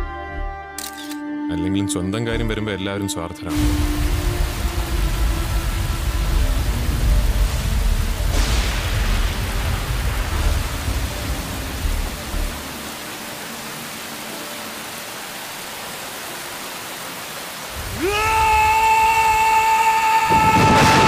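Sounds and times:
deep rumble: 0:03.5 - 0:12.6
steady hiss: 0:03.5 - 0:21.0.

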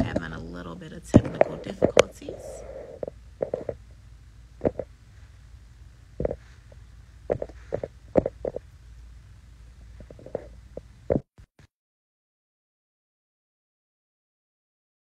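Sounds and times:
low hum: 0:00.0 - 0:11.2.

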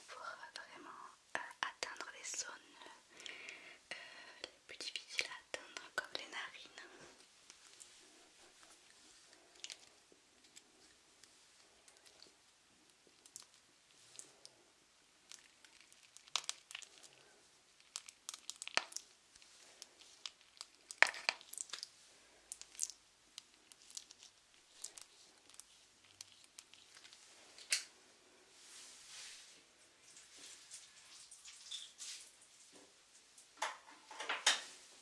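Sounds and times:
crinkling and crackling packaging: 0:04.7 - 0:27.9.

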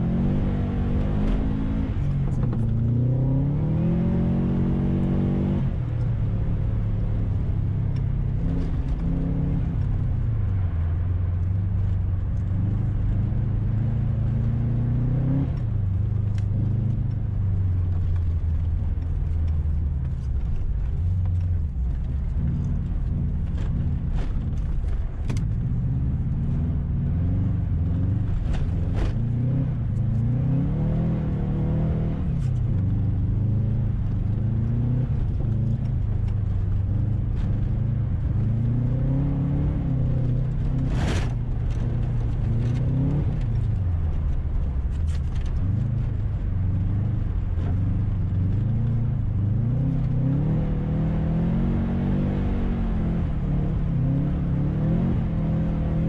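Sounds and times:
race car engine revving: 0:00.0 - 0:05.7, 0:45.1 - 0:56.0.

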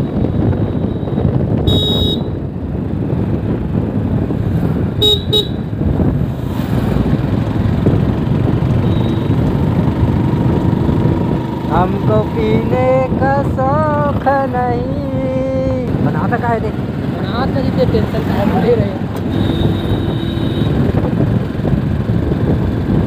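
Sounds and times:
motorcycle engine: 0:00.0 - 0:23.0
wind rush: 0:00.0 - 0:23.0
horn beeps: 0:00.6 - 0:02.4, 0:05.0 - 0:05.6, 0:08.8 - 0:09.6.

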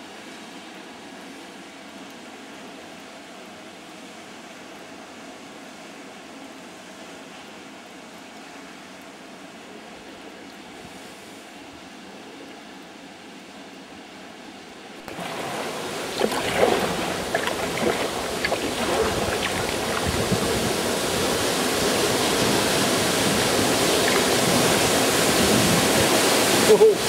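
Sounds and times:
kayak paddling: 0:15.0 - 0:26.8
water splashes and drips: 0:15.0 - 0:27.0
waterfall rushing splash: 0:15.0 - 0:27.0.

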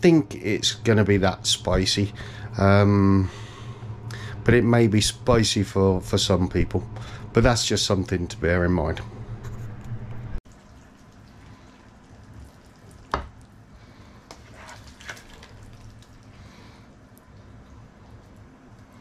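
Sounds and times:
sauce dripping and slopping: 0:10.5 - 0:19.0
spoon scraping pan: 0:14.3 - 0:15.2.

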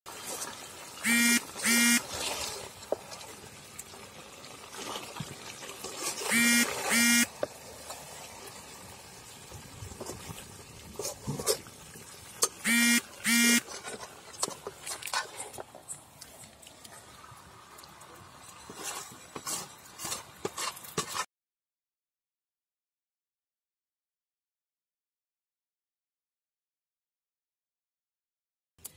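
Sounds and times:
meat frying: 0:00.1 - 0:21.2
duck quacking: 0:01.0 - 0:02.0, 0:06.3 - 0:07.3, 0:12.6 - 0:13.6
ladle scraping pan: 0:18.6 - 0:21.3.

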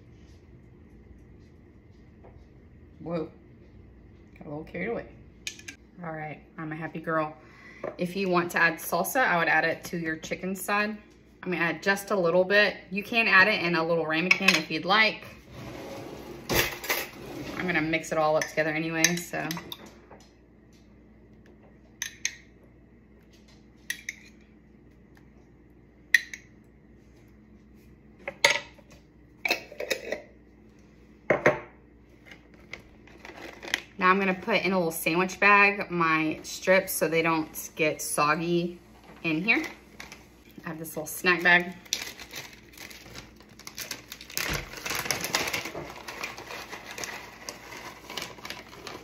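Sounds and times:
plastic snack bag crinkling: 0:41.2 - 0:49.0.

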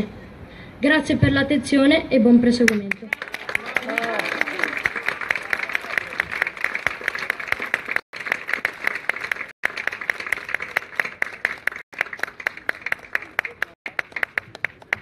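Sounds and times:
crowd applause: 0:03.1 - 0:15.0.

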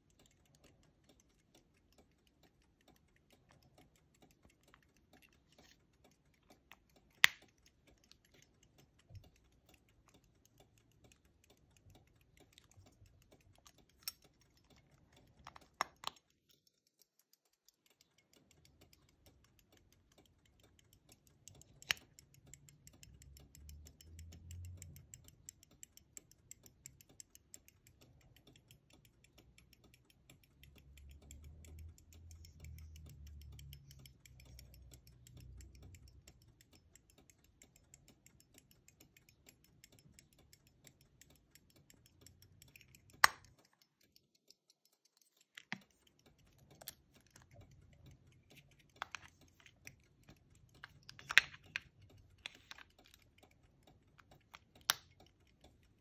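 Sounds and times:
pocket watch ticking: 0:00.0 - 0:56.0
watch case handling clicks: 0:50.8 - 0:53.2.

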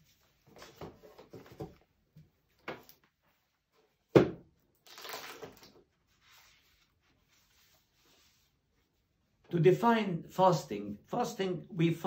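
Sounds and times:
book knocking on wooden table: 0:04.1 - 0:04.4.

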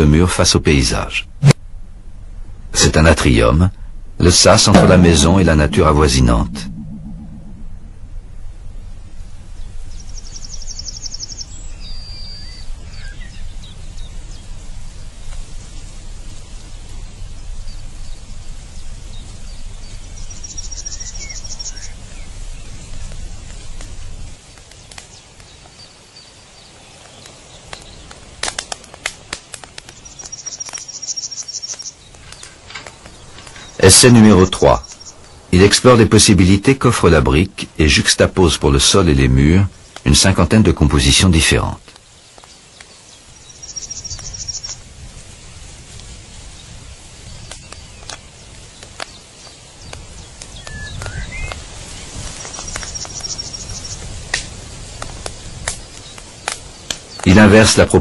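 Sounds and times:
steady low rumble: 0:01.3 - 0:10.4
birds calling: 0:02.8 - 0:44.9, 0:46.2 - 0:58.0
rising chirp: 0:04.2 - 0:11.4.

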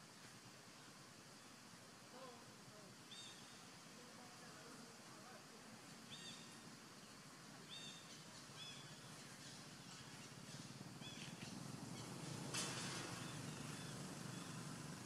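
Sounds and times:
high chirping calls: 0:03.1 - 0:03.6, 0:06.1 - 0:06.6, 0:07.6 - 0:12.4.

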